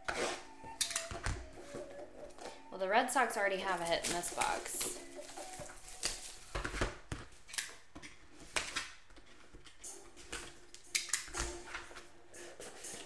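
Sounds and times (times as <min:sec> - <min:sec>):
cellophane crinkling and tearing: 0:03.6 - 0:09.8.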